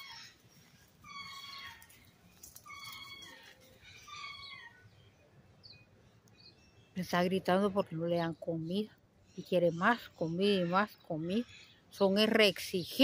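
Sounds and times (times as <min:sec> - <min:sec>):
pet animal shrill cries: 0:02.6 - 0:03.5.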